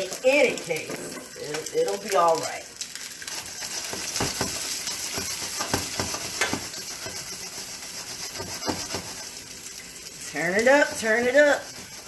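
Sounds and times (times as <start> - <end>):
meat sizzling in a wok: 0.0 - 12.0
scrapes and knocks against pan: 3.7 - 9.3.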